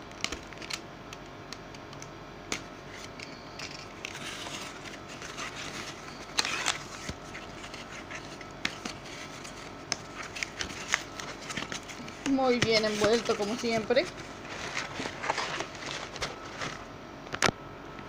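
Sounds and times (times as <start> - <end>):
plastic bag crinkling: 3.4 - 16.9.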